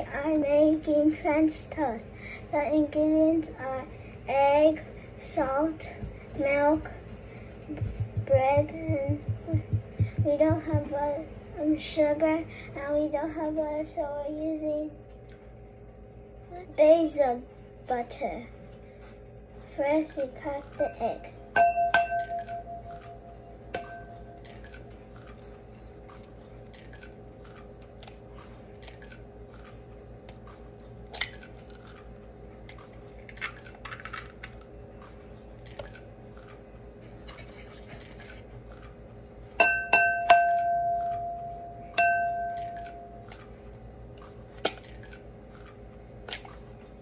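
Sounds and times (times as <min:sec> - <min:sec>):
steady low hum: 0:00.0 - 0:47.0
egg knocking on porcelain bowl: 0:07.7 - 0:10.9
bowl ringing: 0:21.6 - 0:24.5, 0:39.6 - 0:43.3.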